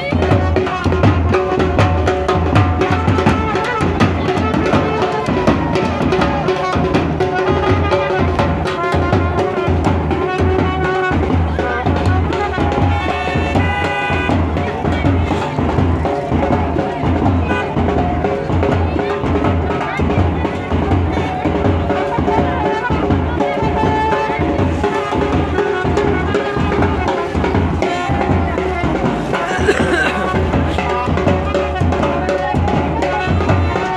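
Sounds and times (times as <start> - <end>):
bass drums beating: 0.0 - 33.9
trumpets playing tune: 6.4 - 14.4.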